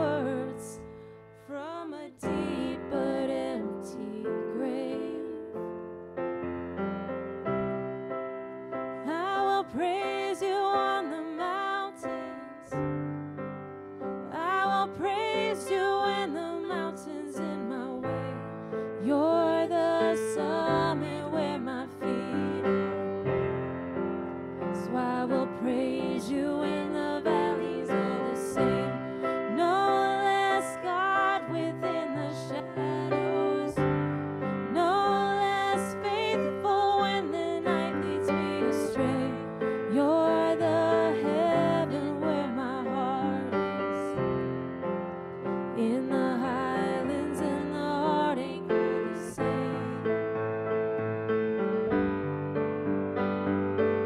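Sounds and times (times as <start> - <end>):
person singing: 0.0 - 0.9, 1.5 - 5.8, 9.0 - 12.8, 14.3 - 23.2, 24.8 - 44.2, 45.8 - 50.3
sustained piano chords: 2.2 - 54.0.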